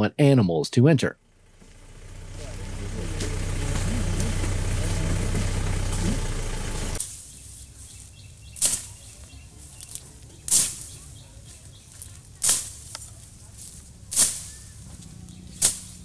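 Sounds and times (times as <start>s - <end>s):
engine-like hum: 1.1s - 16.0s
branches swishing through brush: 7.0s - 16.0s.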